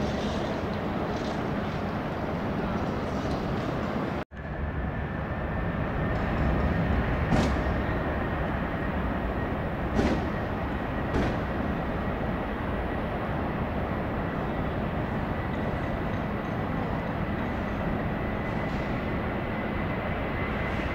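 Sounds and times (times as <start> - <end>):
distant jet engine rumble: 0.0 - 20.9.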